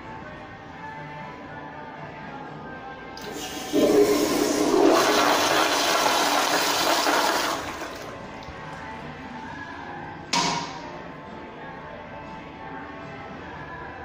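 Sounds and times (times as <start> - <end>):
toilet flushing: 3.2 - 8.2.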